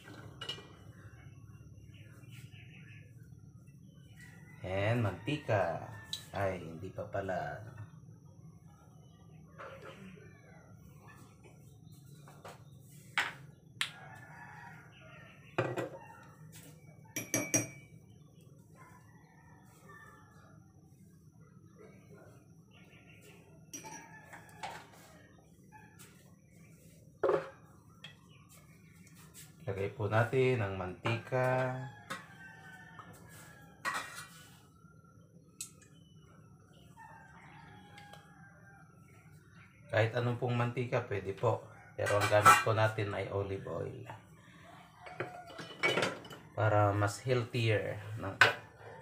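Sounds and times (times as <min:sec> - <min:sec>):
kitchenware knocking and clinking: 0:00.0 - 0:00.8, 0:13.2 - 0:13.5, 0:15.6 - 0:16.0, 0:17.2 - 0:17.9, 0:23.7 - 0:24.8, 0:27.2 - 0:28.2, 0:42.0 - 0:42.8, 0:45.0 - 0:46.6, 0:48.3 - 0:48.7
rooster crowing: 0:04.3 - 0:06.6, 0:13.8 - 0:16.4, 0:23.8 - 0:25.3, 0:31.1 - 0:34.6, 0:36.8 - 0:39.1, 0:44.4 - 0:45.9, 0:47.6 - 0:49.0.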